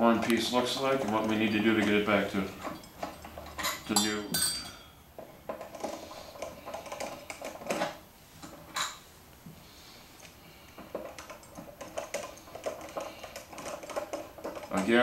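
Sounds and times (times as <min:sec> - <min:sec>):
metal clinks: 0:00.8 - 0:05.0.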